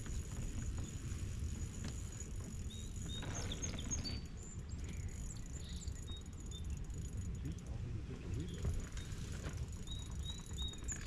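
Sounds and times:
high bird chirps: 2.6 - 7.0, 8.4 - 11.0.

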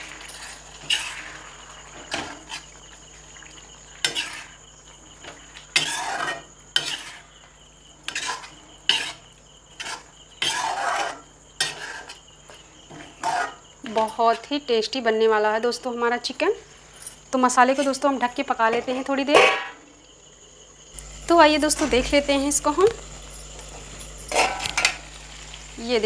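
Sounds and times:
wet masala sizzling: 0.0 - 26.0
metal spoon scraping iron pan: 0.3 - 1.4, 4.0 - 4.5, 5.7 - 7.3, 8.1 - 9.2, 9.8 - 12.2, 12.9 - 14.5, 18.7 - 19.8, 24.2 - 25.0.

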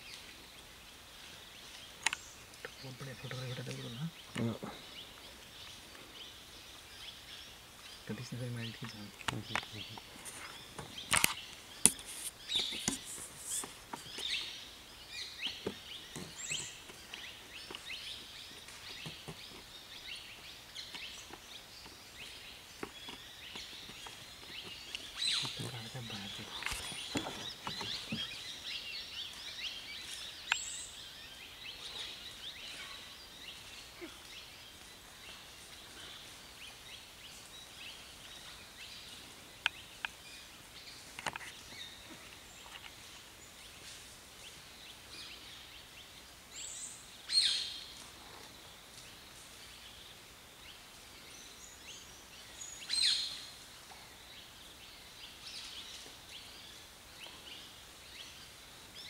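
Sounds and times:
loud sharp bird calls: 0.0 - 43.5
birds chirping: 0.0 - 59.0.

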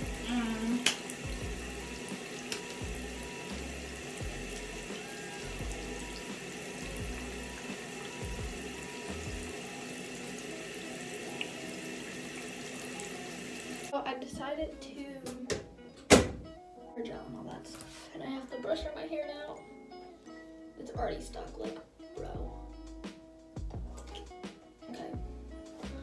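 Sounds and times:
tap water running into sink: 0.0 - 13.9
music playing: 0.0 - 26.0.

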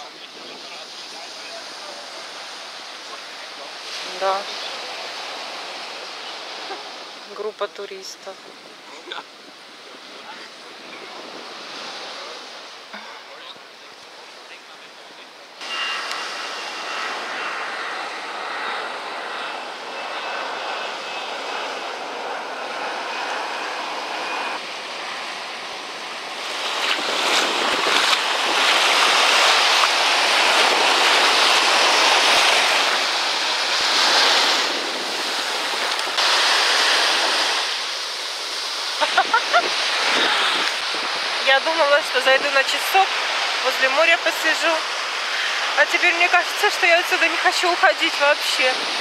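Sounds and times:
waves splashing in shallows: 0.0 - 14.7, 15.6 - 49.0
surf: 0.0 - 49.0
jet airliner engines whining: 15.6 - 49.0.

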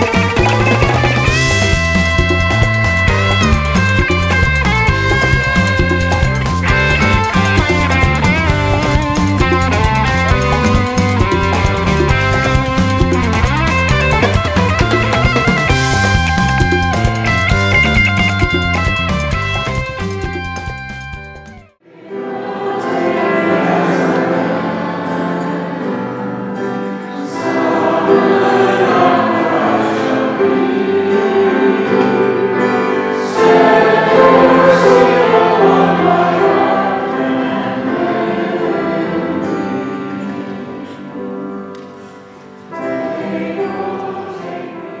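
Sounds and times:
acoustic guitar: 0.0 - 21.8, 22.4 - 45.0
congregation singing: 21.8 - 45.0.

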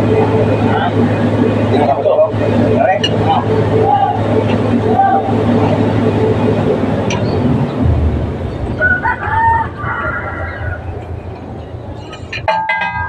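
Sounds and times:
low rumble: 4.3 - 11.9
rooster crowing: 8.5 - 11.0.

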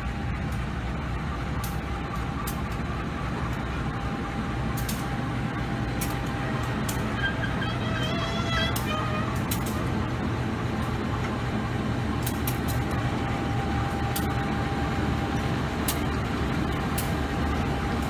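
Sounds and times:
faint steady whine: 0.0 - 18.0
locomotive engine rumbling: 0.0 - 18.0.

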